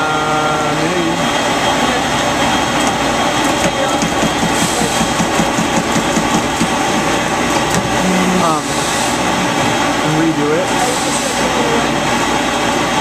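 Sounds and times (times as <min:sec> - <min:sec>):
cutting machine whirring hiss: 0:03.8 - 0:12.1.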